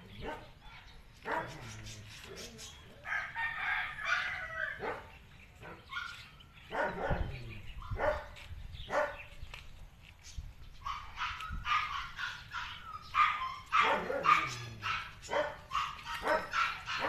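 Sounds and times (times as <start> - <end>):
dog barking: 0.2 - 1.8, 4.0 - 9.3, 10.8 - 17.0
rooster crowing: 3.0 - 4.8.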